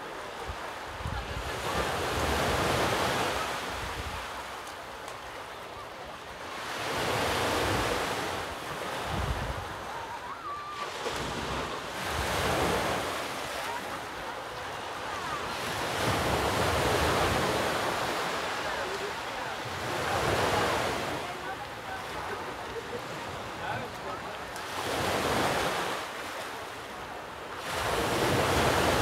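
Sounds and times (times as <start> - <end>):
sea waves breaking on shore: 0.0 - 29.0
wind on microphone: 9.0 - 10.2.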